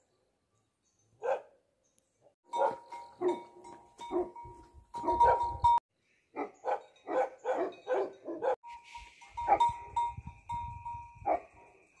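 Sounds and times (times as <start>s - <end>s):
dog barking: 1.2s - 1.6s, 2.5s - 3.5s, 4.1s - 4.4s, 5.0s - 5.6s, 6.4s - 8.6s, 11.2s - 11.7s.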